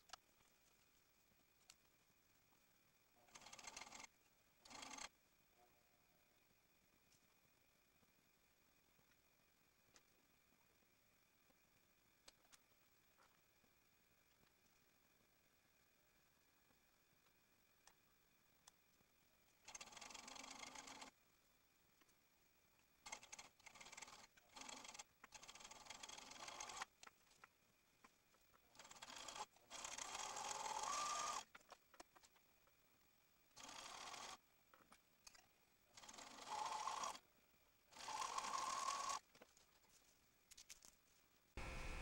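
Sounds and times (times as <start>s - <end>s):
overlocker sewing machine running: 28.7s - 31.4s, 37.9s - 39.2s.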